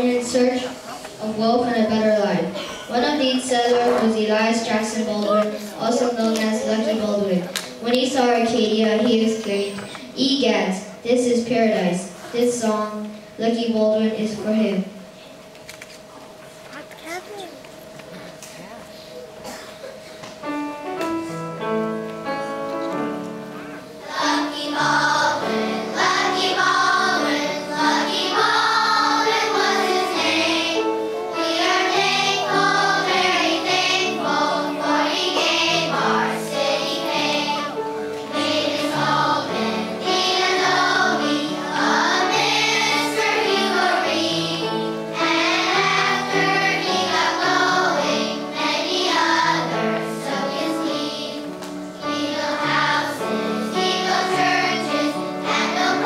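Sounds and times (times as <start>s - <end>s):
musical accompaniment: 19.2s - 56.0s
children's choir singing: 20.5s - 56.0s.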